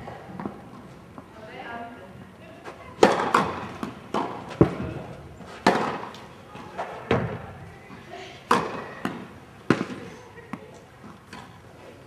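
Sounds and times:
tennis ball racket hits: 3.0 - 5.0, 5.6 - 6.2
tennis ball bouncing on court: 3.0 - 6.2, 8.5 - 11.5.

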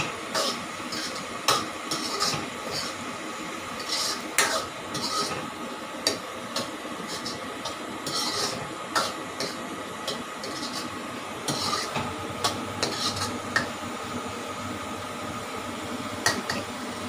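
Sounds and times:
ladle scraping wok: 0.2 - 13.7.

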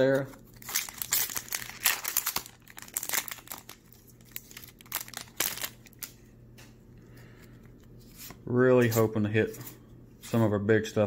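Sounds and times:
foil wrapper crinkling and tearing: 0.0 - 6.2.

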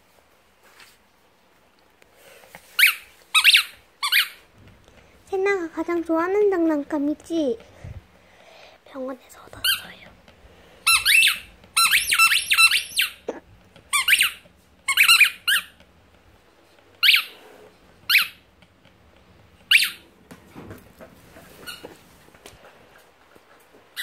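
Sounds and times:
squeaky dog toy squeaking: 2.8 - 4.4, 10.9 - 15.8, 17.0 - 17.4, 18.1 - 18.4, 19.7 - 20.0.

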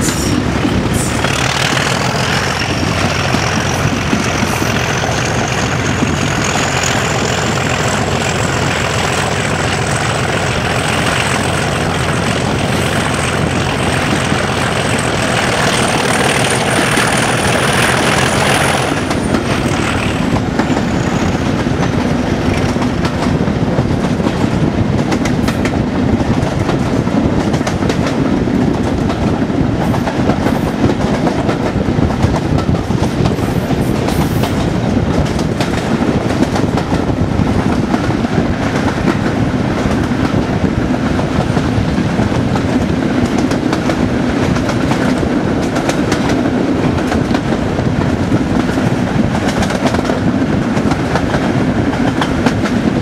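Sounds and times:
diesel locomotive engine thrashing: 0.0 - 23.0
train wheels clicking over rail joints: 0.0 - 53.0.

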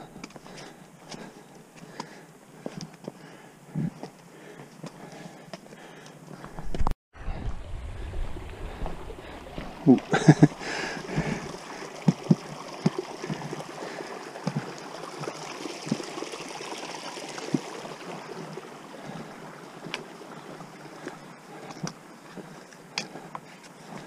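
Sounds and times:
footsteps on rocky path: 0.0 - 7.0, 8.7 - 13.7, 14.4 - 16.0, 17.5 - 24.0
small stream running: 7.2 - 24.0.

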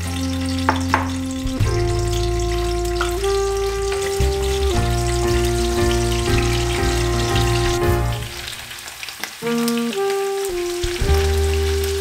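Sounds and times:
slow sustained chords music: 0.0 - 8.7
garlic sizzling in oil: 0.0 - 12.0.

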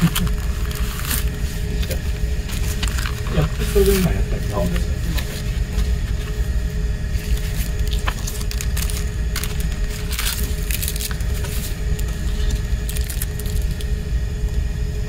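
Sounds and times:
paper and card rustling: 0.0 - 14.0
low room rumble: 0.0 - 15.0.

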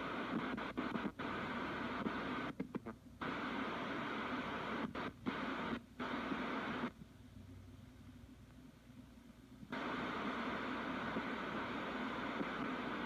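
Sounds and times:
radio static hiss: 0.0 - 7.0, 9.7 - 13.0.

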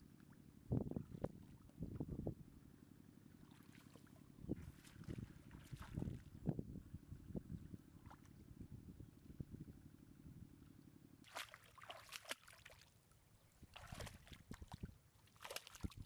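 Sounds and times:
faint low wind rumble: 0.0 - 11.3, 13.0 - 16.0
grass and water rustling: 3.4 - 6.6, 11.2 - 16.0.

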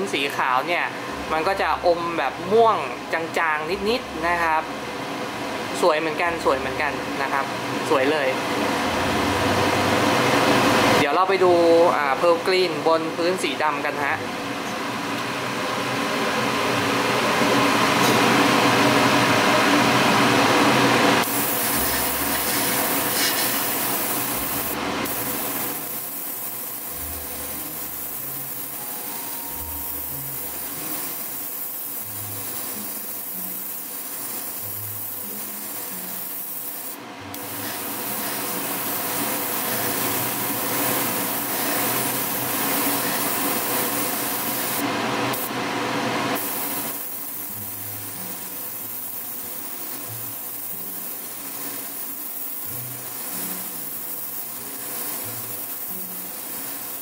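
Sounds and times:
airbrush spraying hiss: 21.2 - 45.5, 46.4 - 57.0.

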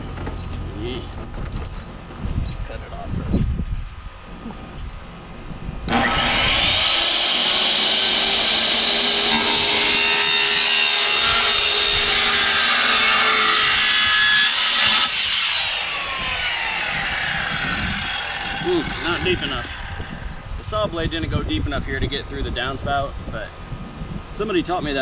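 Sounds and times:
circular saw cutting: 5.9 - 20.4.

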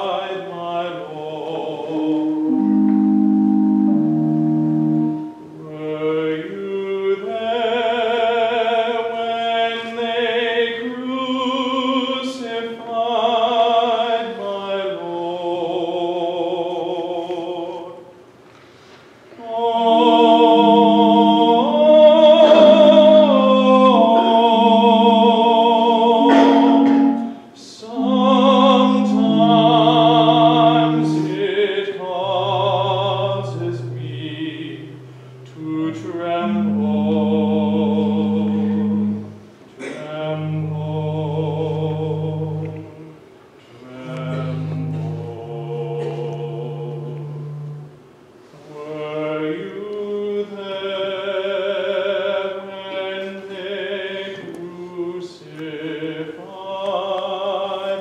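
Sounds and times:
sustained accompanying chords: 1.6 - 6.6, 19.4 - 43.2, 43.8 - 48.1
voices singing with vibrato: 19.4 - 42.8.

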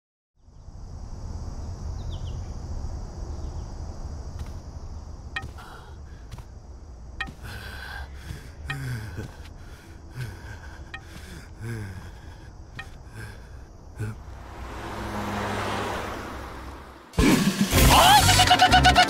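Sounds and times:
low street rumble: 2.6 - 17.3
walking cane tapping: 5.4 - 6.5, 7.2 - 7.6
old man groaning: 7.4 - 14.5
rising whoosh: 14.2 - 17.2.

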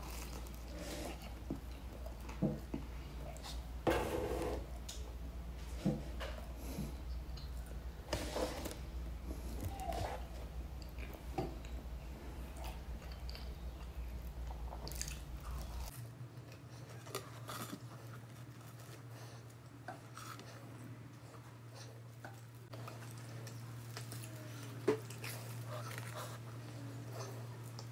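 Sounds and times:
person chewing crunchy bread: 0.0 - 3.7, 9.2 - 27.9.

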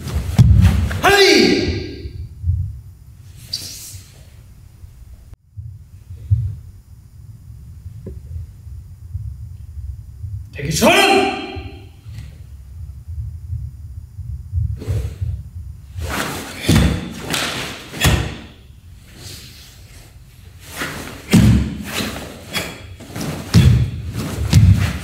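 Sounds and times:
bare feet stamping on wooden floor: 0.2 - 1.0, 16.1 - 18.5, 20.8 - 22.1, 23.0 - 25.0
swish and snap of cloth: 16.1 - 18.4.

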